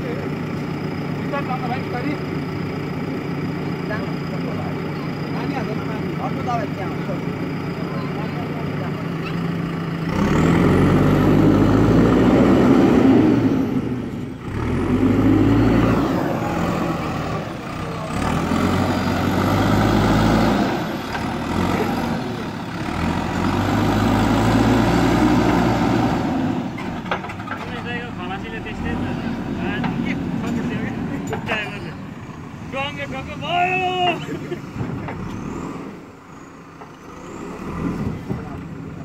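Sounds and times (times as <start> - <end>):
diesel engine revving: 0.0 - 39.0.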